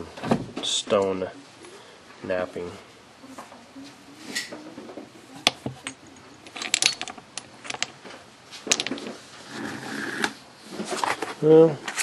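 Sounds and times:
stones clinking and knocking: 5.4 - 9.2.

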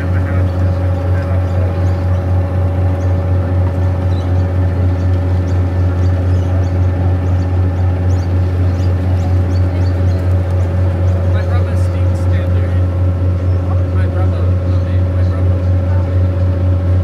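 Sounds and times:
boat engine deep drone: 0.0 - 17.0
steady hum: 0.0 - 17.0.

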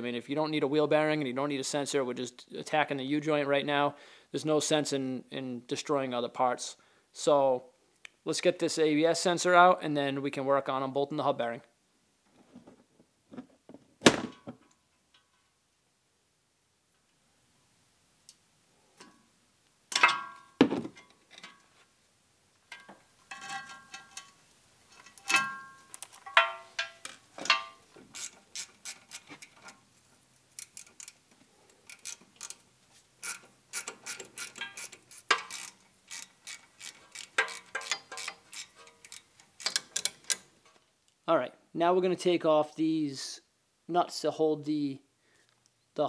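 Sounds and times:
metal tools clinking: 19.9 - 21.6, 22.7 - 29.8, 33.2 - 40.4
hand ratchet clicking: 25.0 - 29.8, 30.6 - 31.2, 31.8 - 32.6, 33.2 - 40.4.

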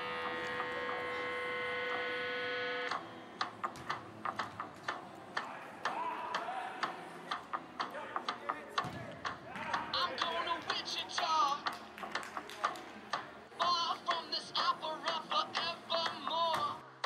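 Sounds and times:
scoreboard buzzer: 0.0 - 3.0.

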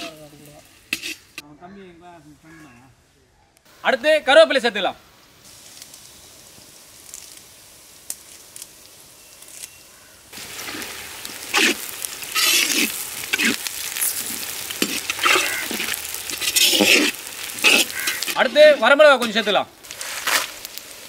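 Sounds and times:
onions frying in hot oil: 0.0 - 1.4, 5.1 - 21.0
ladle scraping pan: 0.9 - 1.4, 10.5 - 19.3.

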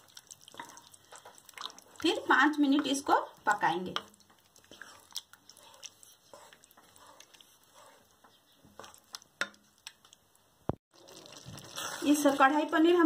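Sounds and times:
spatula scraping pan: 0.5 - 9.6
spatula tapping pan: 2.0 - 4.4, 8.2 - 10.0.

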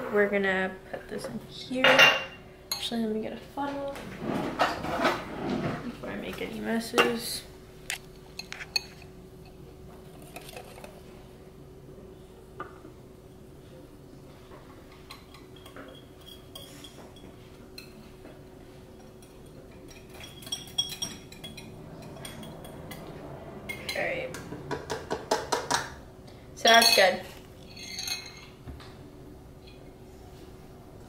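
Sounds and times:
steady low hum: 0.0 - 31.0
metal utensil scraping glass bowl: 19.9 - 24.2, 26.8 - 28.5.

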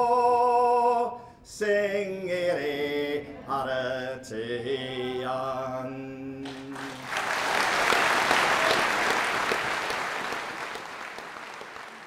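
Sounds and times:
audience applause: 6.5 - 12.0.

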